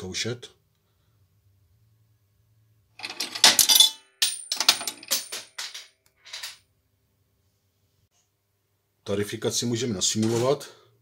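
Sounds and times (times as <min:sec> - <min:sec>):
coin clattering into metal tray: 0:03.0 - 0:06.6
payphone mechanism metallic clack: 0:03.0 - 0:06.6.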